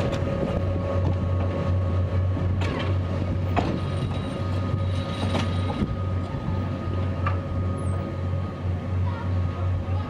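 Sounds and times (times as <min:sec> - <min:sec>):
electric locomotive humming: 0:00.0 - 0:10.0
wheels clicking over rails: 0:02.5 - 0:08.0.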